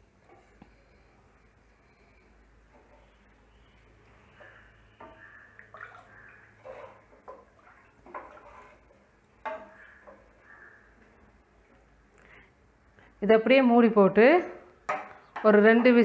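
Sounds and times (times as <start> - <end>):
water sloshing in a pot: 2.6 - 11.0.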